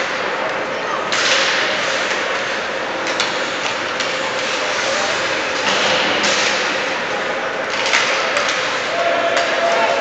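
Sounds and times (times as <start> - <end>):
hockey sticks and puck clacking: 0.0 - 10.0
skate blades scraping ice: 1.1 - 9.0.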